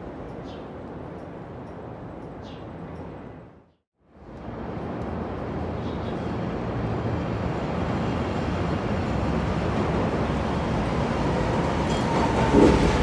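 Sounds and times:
train wheels rumbling on rails: 6.5s - 13.0s.

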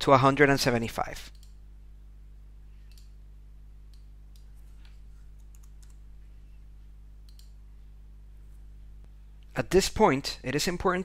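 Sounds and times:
steady low hum: 0.0s - 11.0s
mouse clicks: 2.9s - 3.2s, 7.2s - 7.6s.

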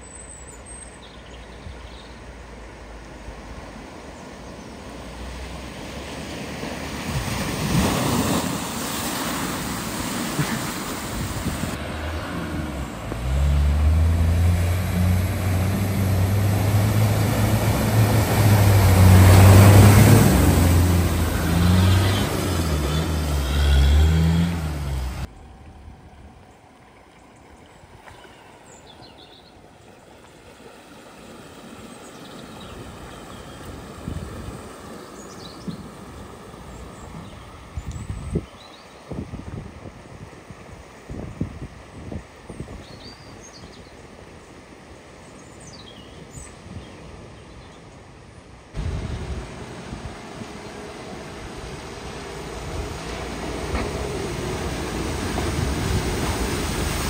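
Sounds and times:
water swishing around wheels: 0.0s - 57.0s
water rushing and splashing: 2.1s - 25.3s, 26.4s - 57.0s
vehicle engine: 9.2s - 28.3s, 48.8s - 57.0s.

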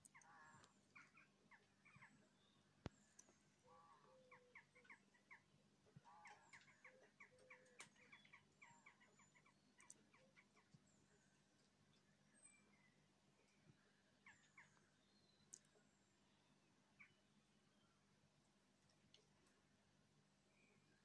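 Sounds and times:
bird calls: 0.0s - 13.6s, 14.2s - 15.9s.

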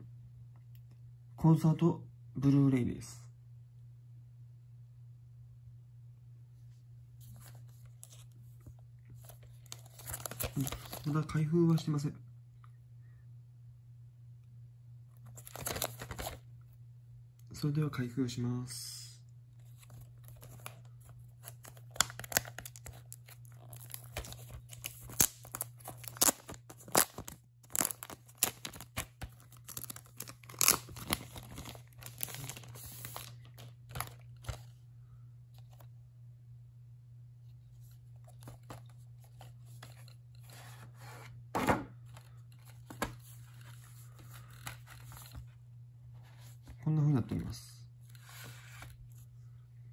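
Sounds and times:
packaging being torn open: 9.6s - 11.1s, 21.4s - 34.6s
packaging cracking: 21.4s - 34.6s.

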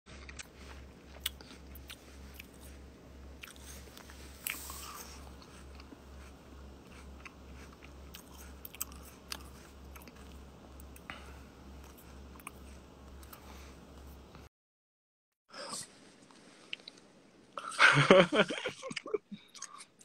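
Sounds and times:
person chewing crisp apple: 0.1s - 14.2s, 19.4s - 20.0s.

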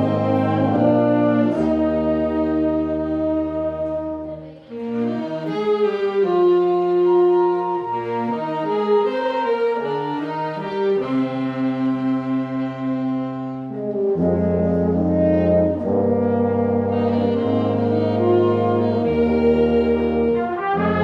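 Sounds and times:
low bass line: 0.0s - 10.3s
concert band sustained chords: 0.0s - 21.0s.

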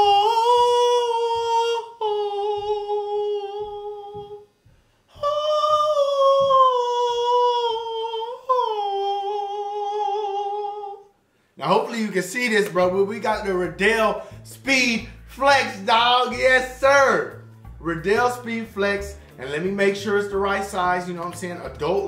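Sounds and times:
man singing long high notes: 0.0s - 4.5s, 5.1s - 11.1s.

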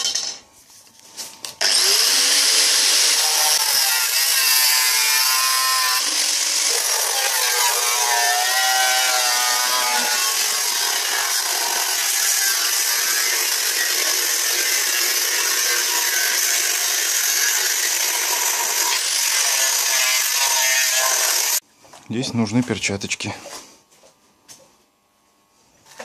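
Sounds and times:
angle grinder cutting metal: 1.6s - 21.6s.

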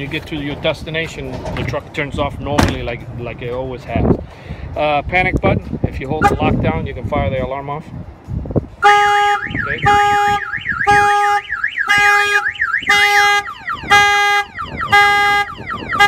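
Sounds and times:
car horn honking: 6.2s - 6.6s, 8.8s - 16.0s
car alarm siren warbling: 8.8s - 16.0s.

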